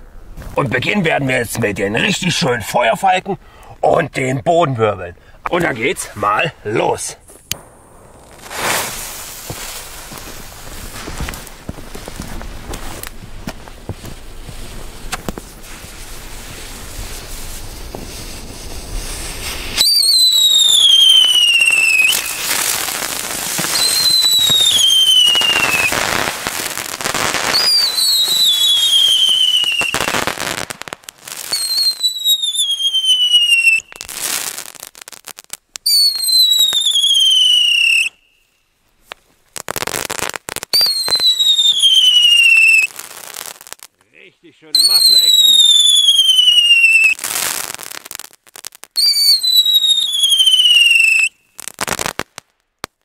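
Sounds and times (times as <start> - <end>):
hissing and crackling sparks: 5.4 - 53.0
fireworks whistling falling in pitch: 7.3 - 11.4, 14.6 - 34.8, 35.8 - 38.6, 39.6 - 43.8, 44.7 - 52.3.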